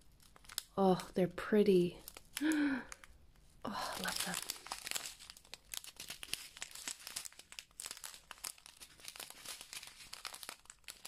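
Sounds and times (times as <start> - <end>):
plastic bags crinkling: 0.0 - 1.2, 1.9 - 11.0.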